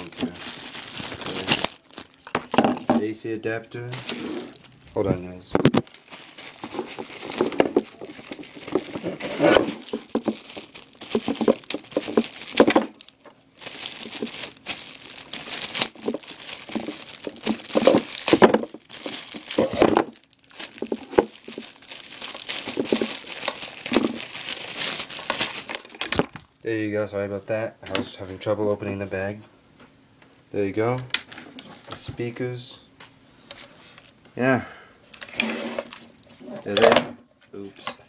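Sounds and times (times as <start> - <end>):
plastic bag crinkling: 0.0 - 3.0, 3.9 - 26.5, 35.1 - 36.4.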